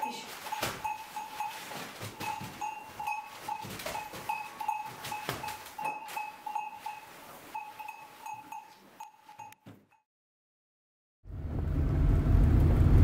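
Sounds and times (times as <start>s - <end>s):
rustling: 0.0s - 9.5s
neck bell clinking: 0.0s - 9.6s.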